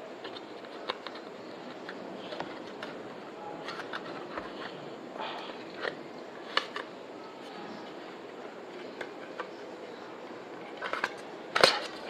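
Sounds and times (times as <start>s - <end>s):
light clicks and scrapes: 0.2s - 8.1s.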